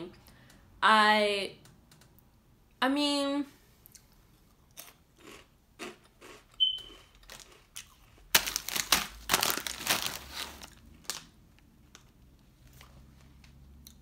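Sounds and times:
chewing crunchy snack: 3.9s - 11.3s
brief high squeak: 6.6s - 7.0s
plastic chip bag crinkling: 7.1s - 12.2s.

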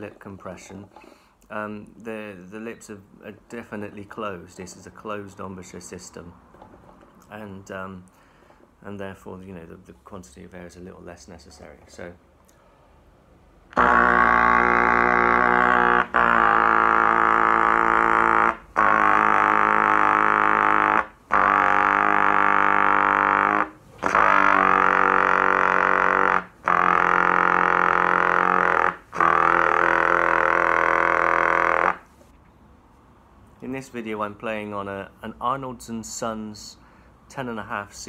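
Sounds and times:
trumpet low pedal notes: 13.7s - 32.1s.

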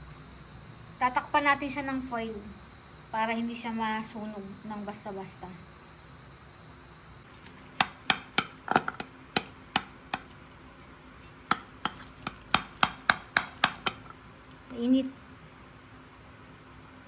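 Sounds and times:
cutlery tapping glass dish: 7.8s - 10.3s.

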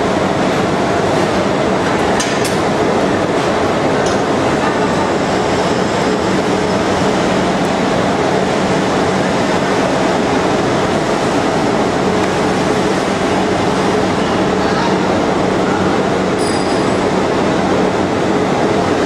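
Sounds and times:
lathe machine rumble: 0.0s - 19.0s.

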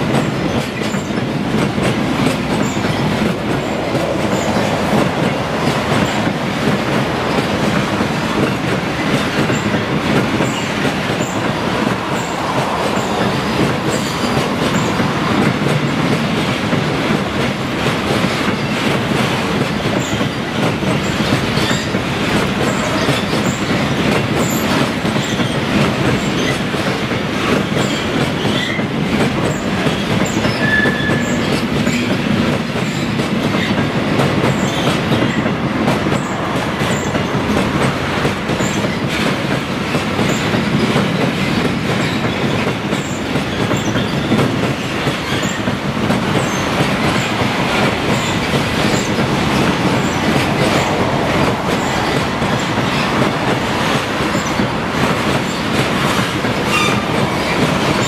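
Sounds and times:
train wheels clattering over rail joints: 0.0s - 58.0s
high wheel squeal: 30.3s - 31.7s, 56.7s - 57.2s.

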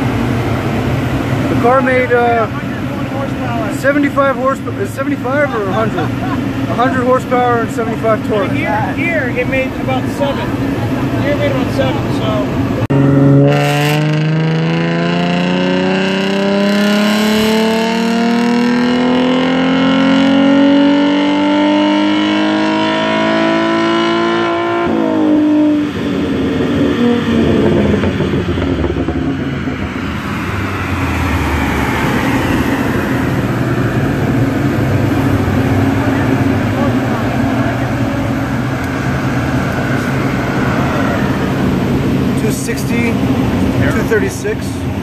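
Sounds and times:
car engine revving on dyno: 0.0s - 45.0s
dyno rollers winding down: 24.8s - 45.0s.

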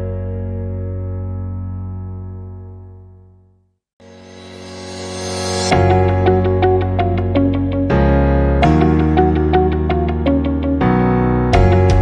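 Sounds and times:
sustained low chords: 5.7s - 12.0s.

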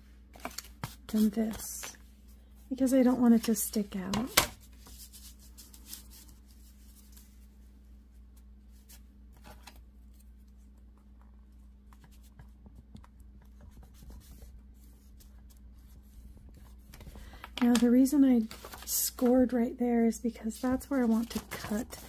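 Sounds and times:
paper handling: 0.3s - 2.0s, 3.4s - 7.5s, 8.7s - 10.8s, 13.7s - 19.4s, 20.5s - 22.0s.

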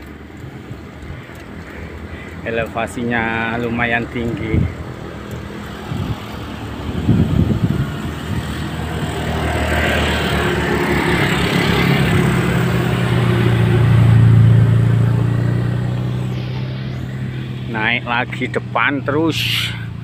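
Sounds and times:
car passing close by: 5.2s - 20.0s.

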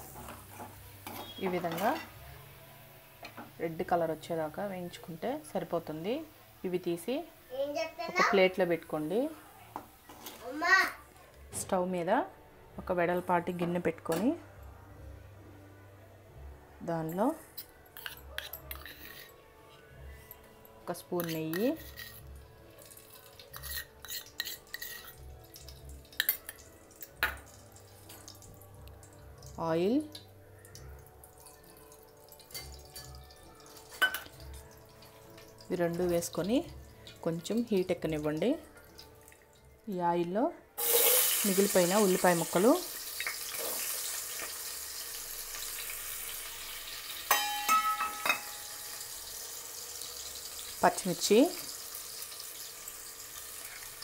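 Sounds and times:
metal spoon scraping a pot: 17.5s - 19.4s, 21.0s - 22.3s, 22.9s - 25.2s
onions sizzling in hot oil: 40.8s - 54.0s
metal clanking on pot: 47.3s - 48.7s.

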